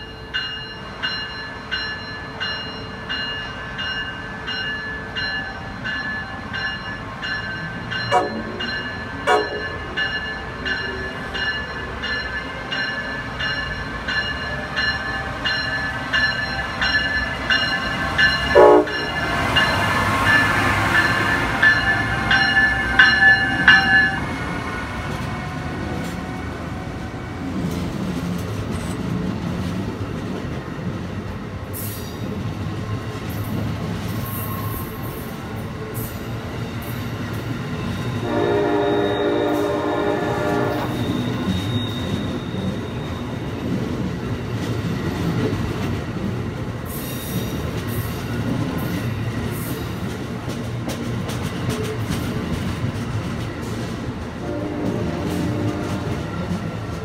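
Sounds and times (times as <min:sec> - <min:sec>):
train cars rumbling and clattering: 0:00.0 - 0:57.0
locomotive horn blasts: 0:08.1 - 0:08.6, 0:09.2 - 0:09.8, 0:18.5 - 0:19.2, 0:38.2 - 0:41.3, 0:54.4 - 0:56.2.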